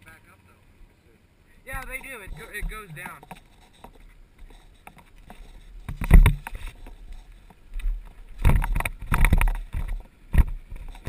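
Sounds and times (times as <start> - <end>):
brush rustling: 1.5 - 11.0
dirt bike rumbling knocks: 5.8 - 7.0, 7.9 - 11.0.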